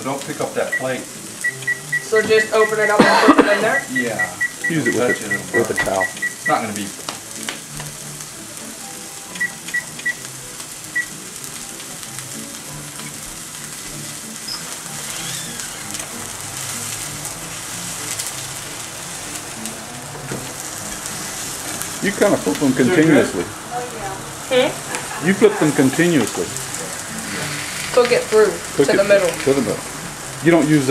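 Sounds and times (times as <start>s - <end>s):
meat sizzling in a frying pan: 0.0s - 30.9s
music: 0.0s - 30.9s
short high beeps: 0.7s - 6.6s.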